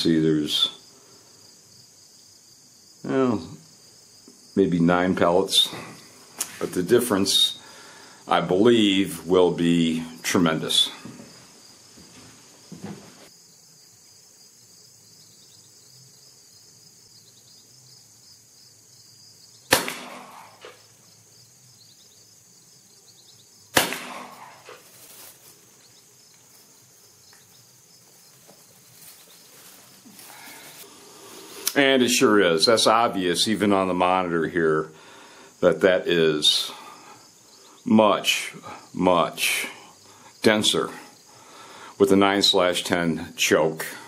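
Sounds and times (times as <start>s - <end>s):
faint high hiss: 3.0s - 18.9s, 19.6s - 44.0s
shotgun shots: 19.7s - 20.8s, 23.7s - 24.7s.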